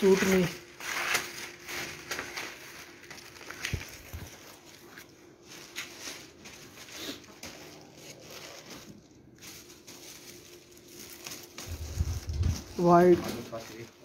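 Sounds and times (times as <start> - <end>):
paper rustling and crinkling: 0.0 - 14.0.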